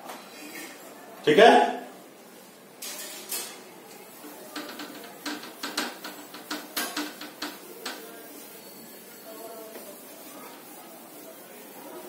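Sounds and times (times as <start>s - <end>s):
cloth rubbing a whiteboard: 4.1s - 12.0s.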